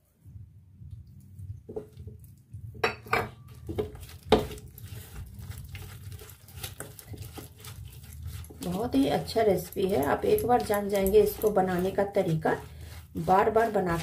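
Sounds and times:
hand mixing wet batter: 0.7s - 14.0s
clinks against steel bowl: 2.8s - 3.4s.

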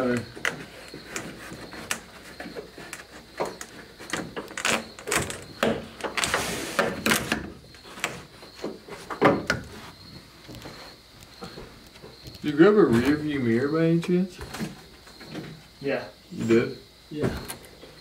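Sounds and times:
scraping rustle: 0.0s - 13.5s.

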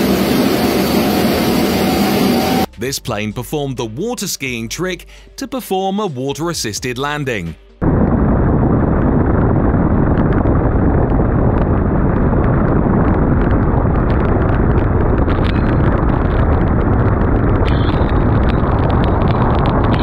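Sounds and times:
plane engine: 0.0s - 2.7s, 7.8s - 20.0s
wind rushing: 7.8s - 20.0s.

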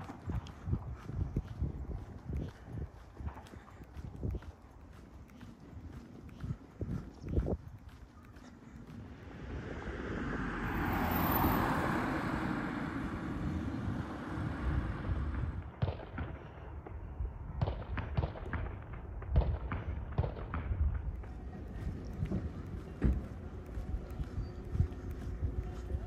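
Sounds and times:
footsteps on pavement: 0.0s - 26.0s
vehicle passing by: 8.8s - 15.6s.

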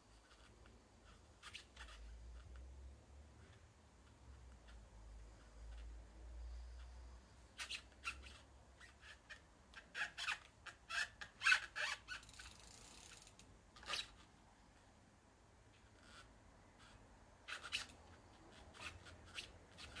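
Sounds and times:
bike squeaking and clicking on wood: 0.2s - 2.6s, 7.6s - 14.3s, 16.0s - 20.0s.

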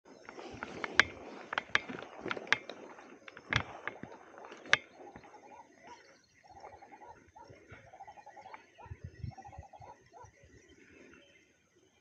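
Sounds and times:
fishing reel clicking: 0.3s - 5.0s.

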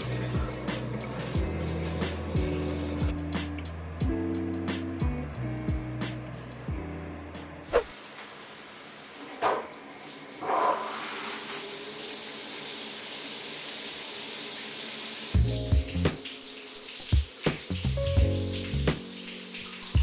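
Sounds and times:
music: 0.0s - 7.8s, 15.3s - 20.0s
shower water spraying: 7.7s - 20.0s.

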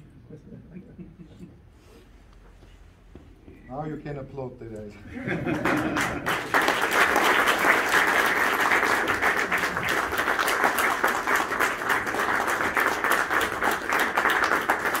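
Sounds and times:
crowd applauding: 5.3s - 15.0s.

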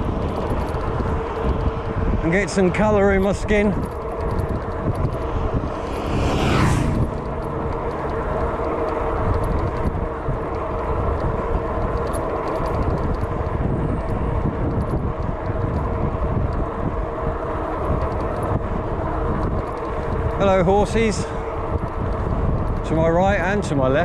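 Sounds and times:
e-bike motor and tyre hum: 0.0s - 24.0s
vehicle passing by: 0.8s - 11.0s.

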